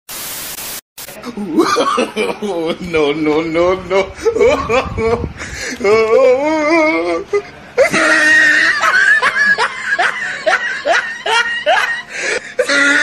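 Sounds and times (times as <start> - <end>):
person laughing: 1.2 - 3.1, 3.9 - 13.0
wavering held voice: 12.6 - 13.0.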